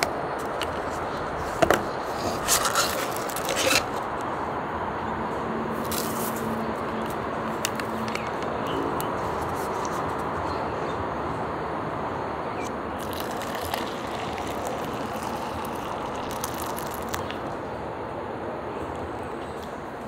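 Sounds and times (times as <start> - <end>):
outdoor background noise: 0.0 - 20.0
paper cup and packets crinkling: 2.1 - 4.0, 5.8 - 6.5, 13.0 - 17.4
hot water pouring into cup: 13.0 - 17.5.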